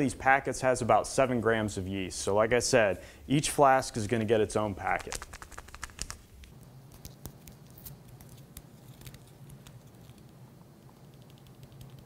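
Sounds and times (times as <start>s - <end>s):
packet crinkling and clicking: 4.8s - 10.3s
low steady hum: 6.1s - 12.0s.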